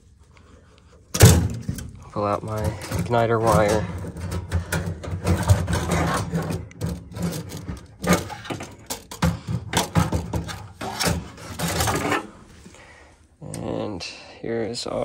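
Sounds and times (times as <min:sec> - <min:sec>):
sheet metal clinking and scraping: 0:01.1 - 0:12.5.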